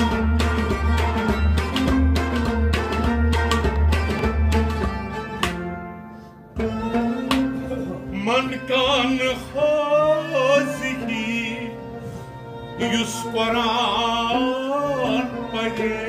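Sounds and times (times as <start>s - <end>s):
bowed string instrument: 0.0s - 16.0s
man singing with vibrato: 8.1s - 12.0s, 12.8s - 16.0s.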